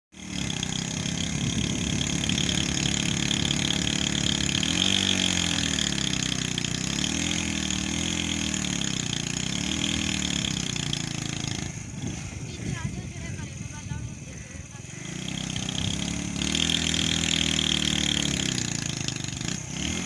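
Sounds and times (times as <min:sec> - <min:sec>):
motorcycle engine revving: 0:00.1 - 0:20.0.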